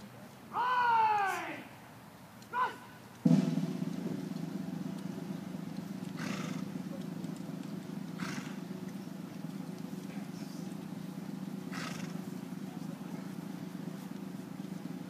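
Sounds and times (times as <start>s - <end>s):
steady low hum: 3.2s - 15.0s
horses snorting: 4.2s - 15.0s.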